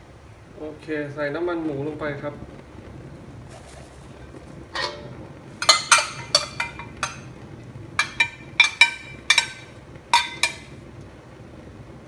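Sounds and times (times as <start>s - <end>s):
plastic bag crackling: 3.4s - 4.6s.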